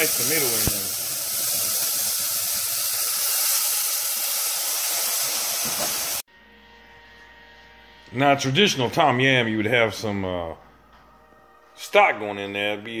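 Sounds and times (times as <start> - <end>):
food sizzling in oil: 0.0 - 6.2.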